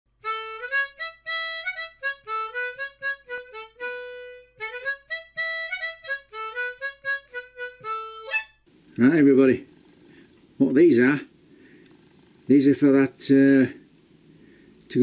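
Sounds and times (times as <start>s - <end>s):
solo harmonica melody: 0.1s - 8.7s.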